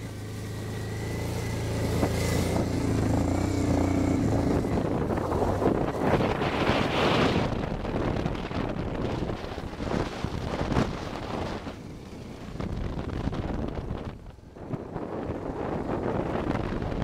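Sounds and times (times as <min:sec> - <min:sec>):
motorcycle engine running: 0:00.0 - 0:17.0
wind buffeting microphone: 0:00.4 - 0:17.0.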